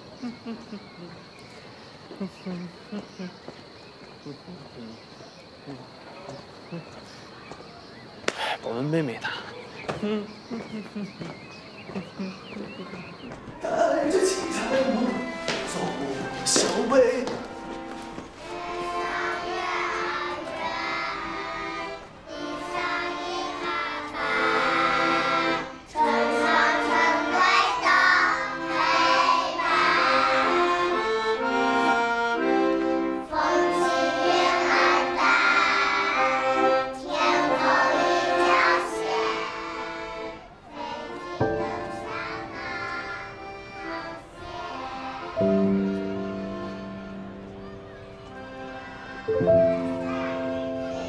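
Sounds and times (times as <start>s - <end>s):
accordion: 0.0s - 7.6s, 9.8s - 51.0s
children singing in unison: 12.0s - 51.0s.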